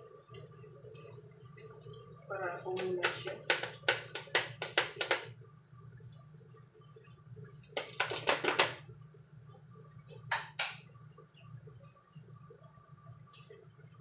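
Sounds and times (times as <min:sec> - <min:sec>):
kitchen items clattering: 0:02.6 - 0:05.3, 0:07.7 - 0:08.8.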